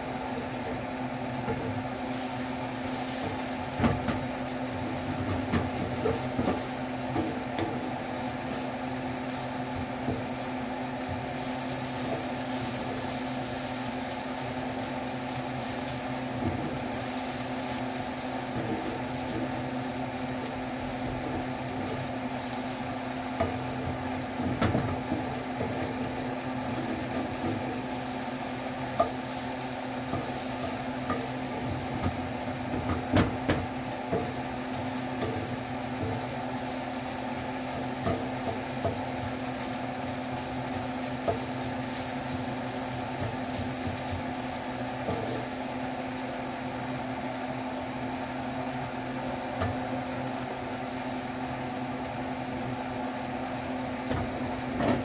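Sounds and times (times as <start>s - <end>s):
eggs sizzling in a skillet: 0.0s - 55.0s
steady hum: 0.0s - 55.0s
spatula scraping and knocking pan: 1.4s - 20.2s, 21.1s - 45.8s.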